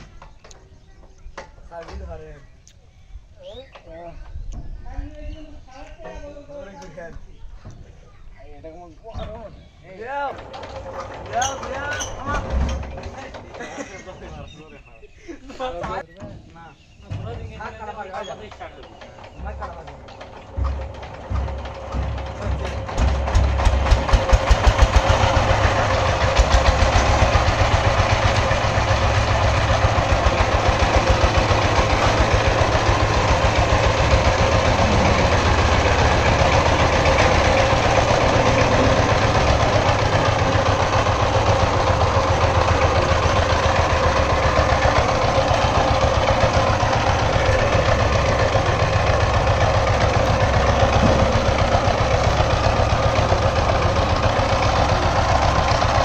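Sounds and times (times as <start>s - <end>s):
diesel engine knocking: 10.0s - 14.6s, 15.9s - 56.0s.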